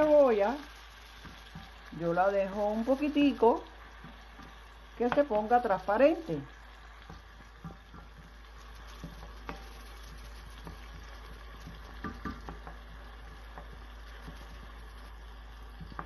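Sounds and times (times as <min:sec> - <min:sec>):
onion sizzling in oil: 0:00.0 - 0:16.0
wooden spoon knocking on pan: 0:01.2 - 0:01.9, 0:03.9 - 0:05.6, 0:07.0 - 0:14.6, 0:15.7 - 0:16.0.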